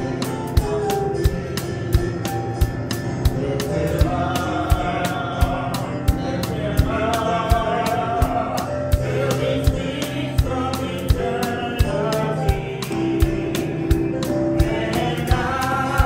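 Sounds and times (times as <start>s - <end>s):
steady drum beat: 0.0s - 16.0s
voices singing a hymn: 3.2s - 16.0s.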